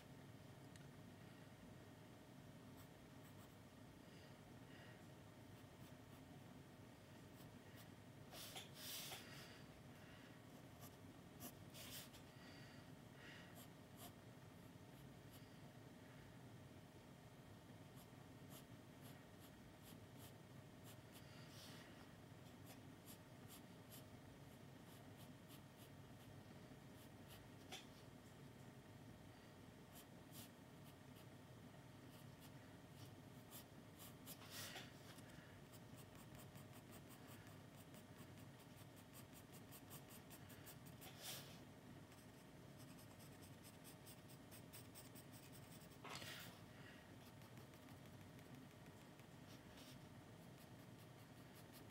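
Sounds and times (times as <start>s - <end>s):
pencil scratching on paper: 35.6s - 41.5s, 42.1s - 46.1s, 47.2s - 51.9s.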